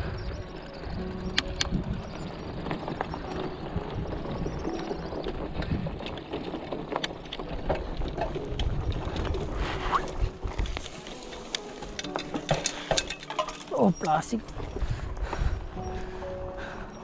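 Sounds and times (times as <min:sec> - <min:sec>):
bike clicks and rattles: 0:00.0 - 0:16.0
bicycle rumbling over rough ground: 0:00.0 - 0:17.0.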